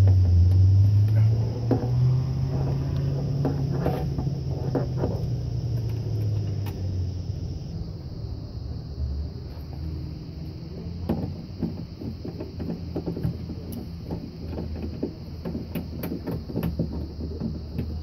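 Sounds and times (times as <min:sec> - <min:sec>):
steady low hum: 0:00.0 - 0:18.0
clicks and rattles inside car door: 0:01.2 - 0:06.9, 0:10.6 - 0:18.0.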